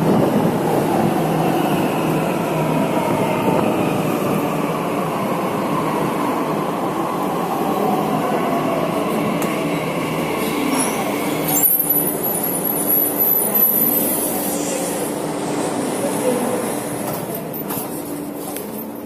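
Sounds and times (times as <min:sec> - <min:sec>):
metro train running: 0:00.0 - 0:19.0
thin high brake squeal: 0:10.7 - 0:12.2.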